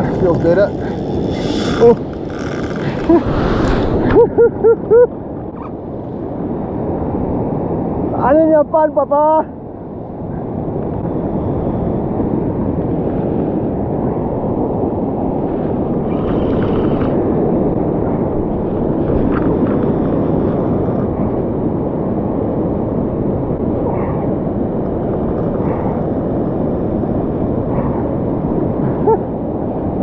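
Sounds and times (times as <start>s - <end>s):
surf breaking on beach: 0.0s - 7.6s
wind buffeting microphone: 0.0s - 30.0s.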